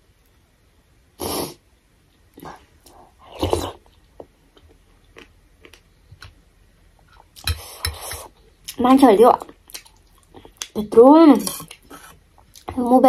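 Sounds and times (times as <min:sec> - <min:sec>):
chewing with small clicks: 0:09.4 - 0:10.8.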